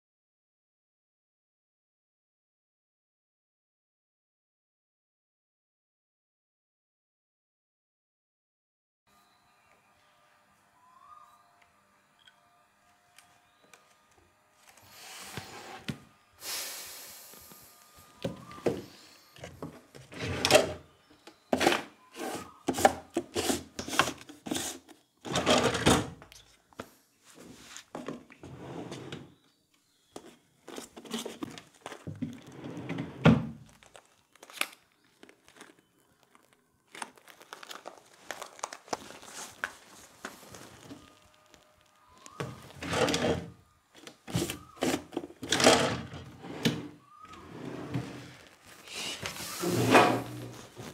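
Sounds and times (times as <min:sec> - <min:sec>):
rustling: 0:33.7 - 0:42.8.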